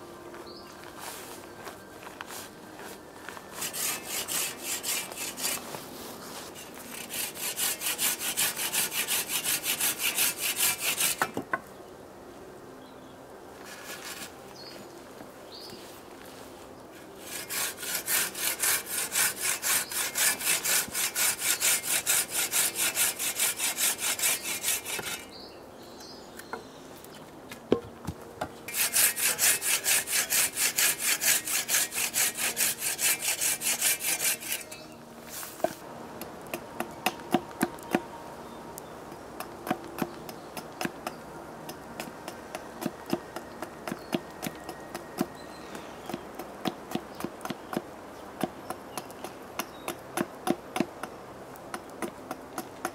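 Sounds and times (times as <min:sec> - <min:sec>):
saw cutting through a log: 0:03.6 - 0:05.7, 0:06.6 - 0:11.4, 0:17.2 - 0:25.3, 0:28.7 - 0:34.8.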